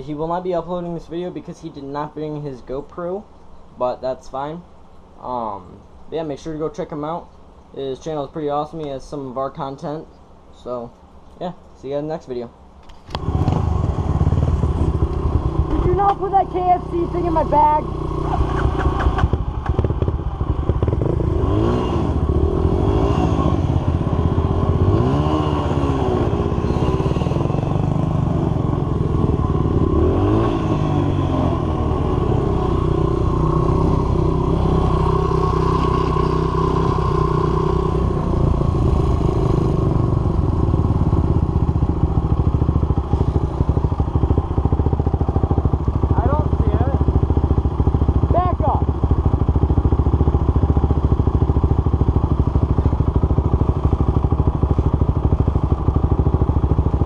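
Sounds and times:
quad engine running: 13.0 - 57.0
dirt bike engine revving: 13.2 - 57.0.

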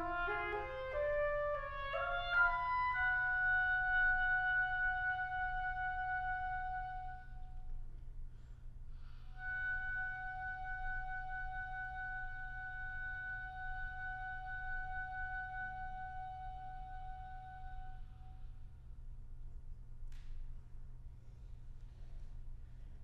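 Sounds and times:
oboe holding a high note: 0.0 - 7.5, 9.4 - 18.4.

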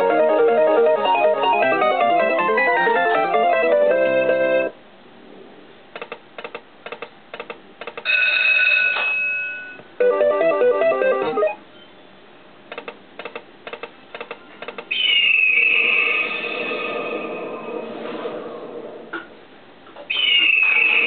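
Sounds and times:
stepped-note tune: 0.0 - 4.7, 10.0 - 11.6
slot machine reels clicking: 10.0 - 11.6.

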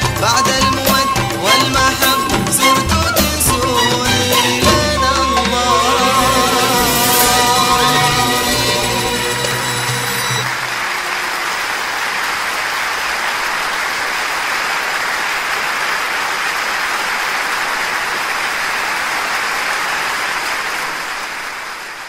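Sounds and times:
audience applauding: 5.9 - 22.0.

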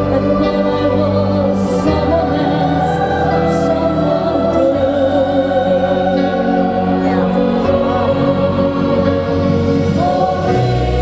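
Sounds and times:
children's choir singing: 0.0 - 11.0
woman singing into a microphone: 0.0 - 11.0.

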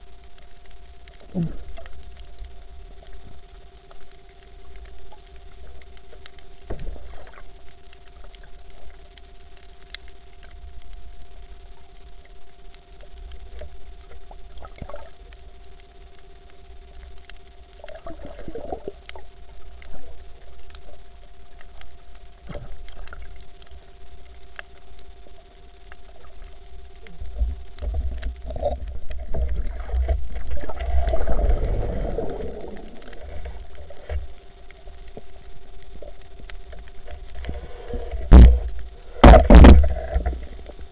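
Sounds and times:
faint steady hum: 0.0 - 40.9
underwater rumble of water: 0.0 - 40.9
bubbling gurgle: 1.2 - 2.2, 5.0 - 9.1, 13.4 - 15.3, 17.8 - 21.2, 25.9 - 40.9.

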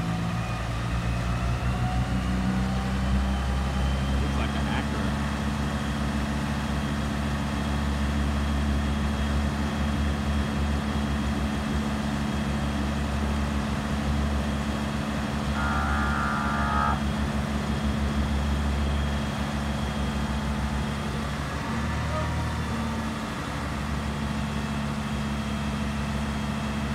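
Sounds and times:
vehicle engine idling: 11.3 - 21.6
multi-pitch tone: 15.6 - 17.0.

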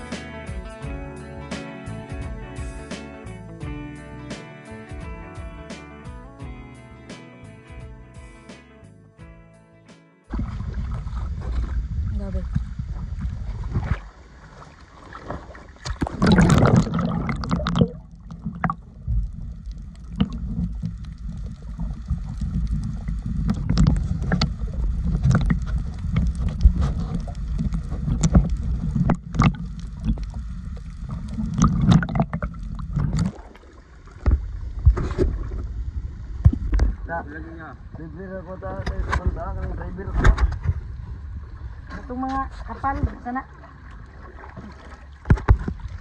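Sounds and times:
steady low rumble: 10.3 - 14.4, 16.0 - 44.2
water sloshing and splashing: 10.3 - 37.1, 40.1 - 46.0.

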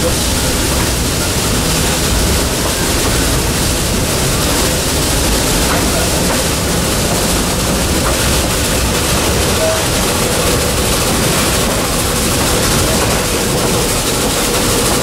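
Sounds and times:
train car rumbling along: 0.0 - 15.0.

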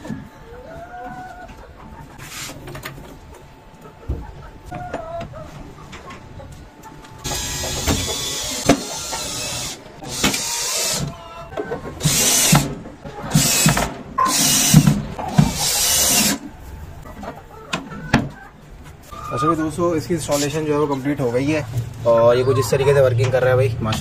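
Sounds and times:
power drill driving screws: 7.2 - 11.1, 12.0 - 12.7, 13.3 - 16.4.

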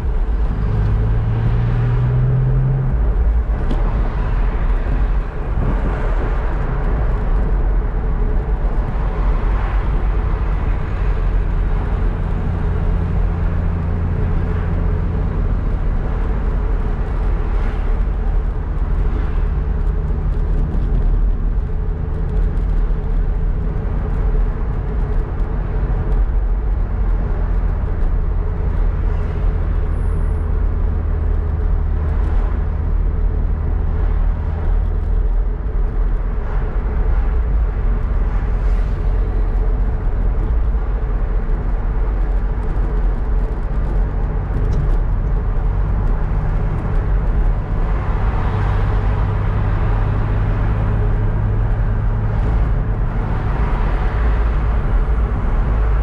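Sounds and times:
car engine hum: 0.0 - 56.0
tyre and road noise: 0.0 - 56.0.

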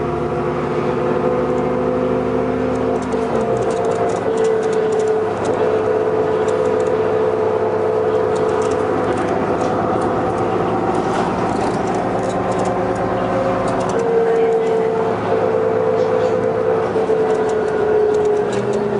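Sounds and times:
bus engine hum with whine: 0.0 - 18.9
light rattles: 8.1 - 14.7.

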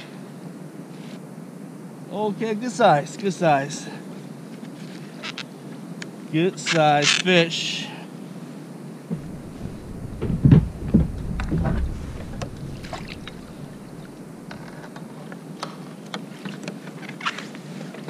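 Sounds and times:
knocks against plastic kayak: 9.1 - 14.1
water dripping: 9.1 - 14.6
water splashing: 9.1 - 14.6.

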